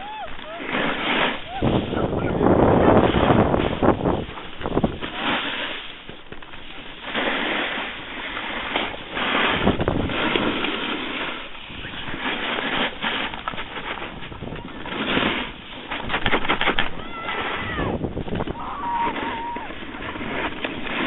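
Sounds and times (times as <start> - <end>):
wind buffeting microphone: 0.0 - 5.4, 9.2 - 10.7, 13.2 - 21.0
skis sliding over packed snow: 0.0 - 21.0.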